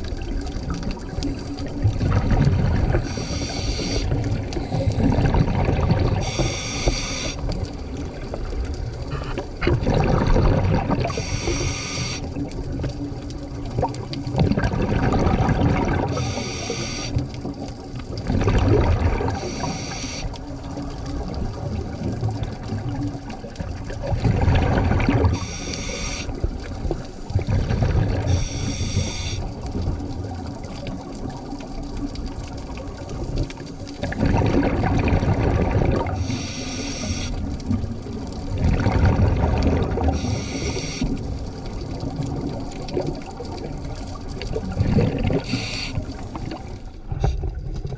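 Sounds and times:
rumbling exhaust bubbles: 0.0s - 19.7s, 20.4s - 47.9s
regulator hissing: 3.1s - 4.0s, 6.2s - 7.4s, 11.2s - 12.2s, 19.4s - 20.3s, 36.2s - 37.3s, 40.2s - 41.0s.

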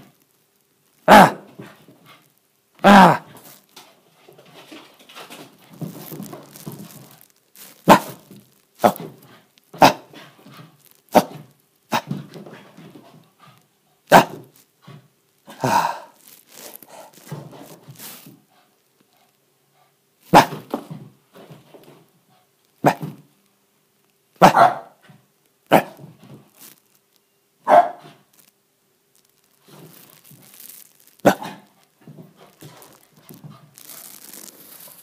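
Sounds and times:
puppy barking: 24.4s - 25.0s, 27.6s - 28.1s.

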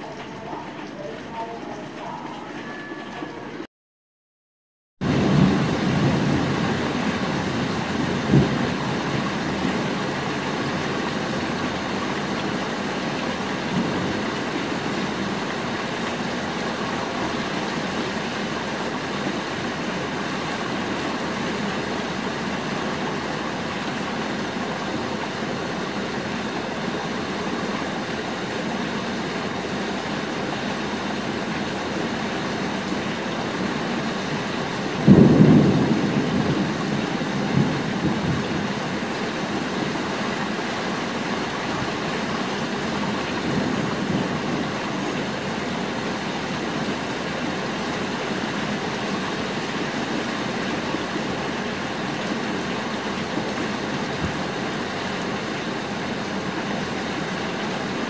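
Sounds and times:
steady rain: 0.0s - 3.7s, 5.0s - 58.0s
thunder clap rumbling: 5.0s - 12.0s, 34.2s - 39.1s, 43.0s - 45.1s.

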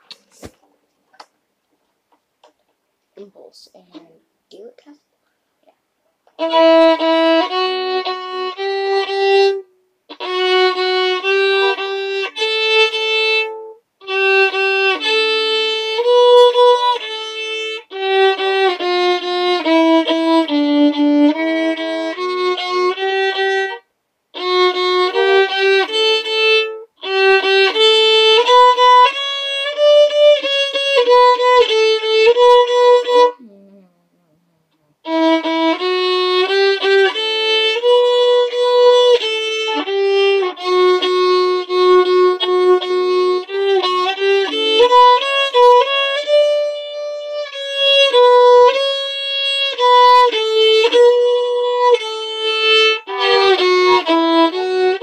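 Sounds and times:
solo violin melody: 6.3s - 33.6s, 35.0s - 55.0s.

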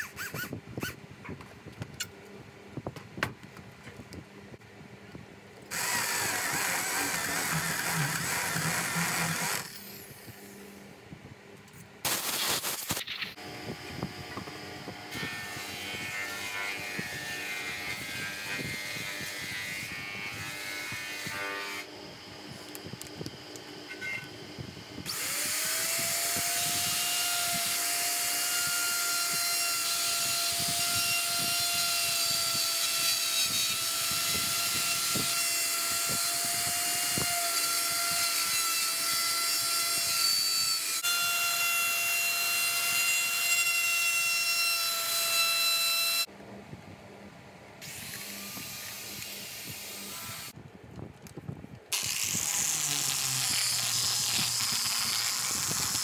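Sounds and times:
electric router whining: 5.7s - 10.4s, 13.4s - 43.7s, 52.0s - 56.0s.

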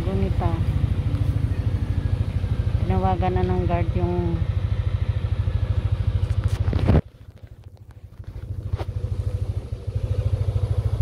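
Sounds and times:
motorbike engine idling: 0.0s - 11.0s.

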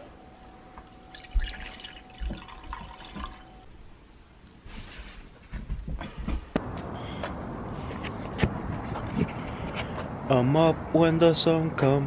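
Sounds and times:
faint steady whine: 0.0s - 4.7s
drips: 0.8s - 3.6s
hot drink pouring into a mug: 0.9s - 3.4s.

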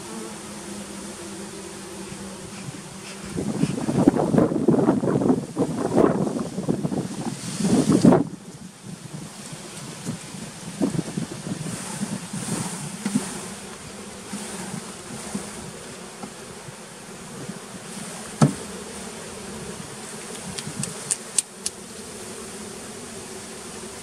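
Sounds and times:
bees humming: 0.0s - 24.0s
wooden knock: 18.4s - 18.6s.

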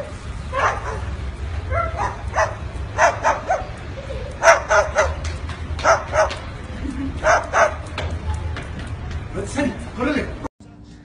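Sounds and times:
dog-like yapping barks: 0.5s - 6.5s, 7.2s - 7.9s.

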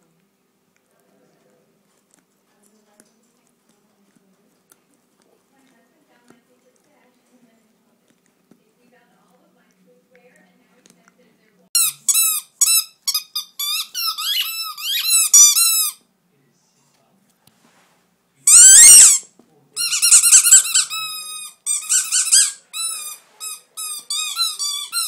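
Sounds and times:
squeaky dog toy squeaking: 11.8s - 16.0s, 18.5s - 25.0s.

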